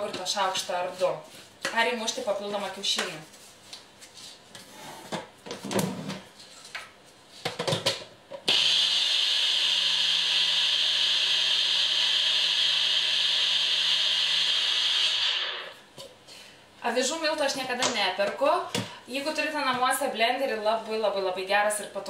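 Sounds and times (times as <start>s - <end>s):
blender motor grinding oats: 8.4s - 15.8s.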